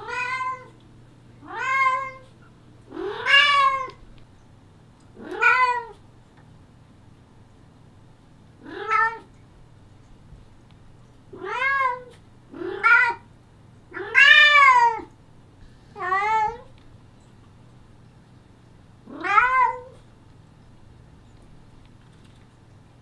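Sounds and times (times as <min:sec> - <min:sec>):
cat meowing loudly: 0:02.9 - 0:04.0, 0:05.2 - 0:06.0, 0:08.6 - 0:09.3, 0:11.4 - 0:13.2, 0:14.0 - 0:15.1, 0:16.0 - 0:16.7, 0:19.1 - 0:20.0.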